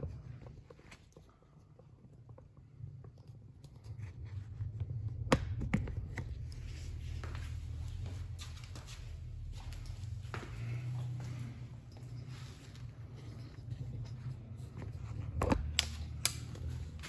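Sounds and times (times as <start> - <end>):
low rumble: 3.8 - 17.0.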